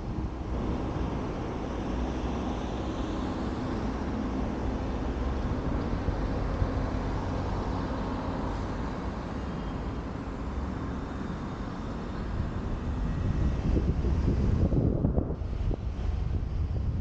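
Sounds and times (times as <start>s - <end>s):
car engine and road noise: 0.0s - 17.0s
wind on microphone: 12.2s - 17.0s.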